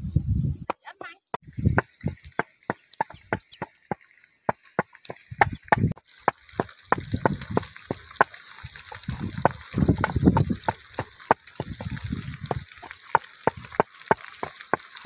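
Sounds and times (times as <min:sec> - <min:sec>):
low rumbling: 0:00.0 - 0:00.7
fish deep-frying in oil: 0:01.4 - 0:15.0.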